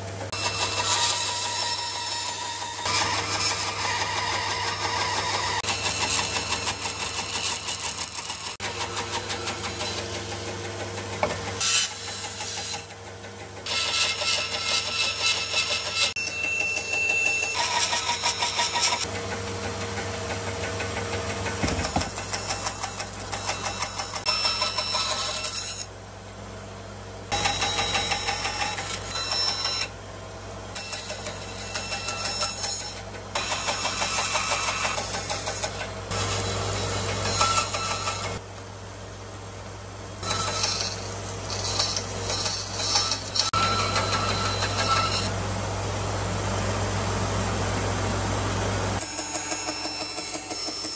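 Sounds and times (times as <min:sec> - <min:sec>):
bandsaw cutting wood: 0:00.0 - 0:13.0, 0:13.6 - 0:19.1, 0:21.4 - 0:25.9, 0:27.3 - 0:29.9, 0:30.7 - 0:38.4, 0:40.2 - 0:45.4, 0:49.0 - 0:50.9.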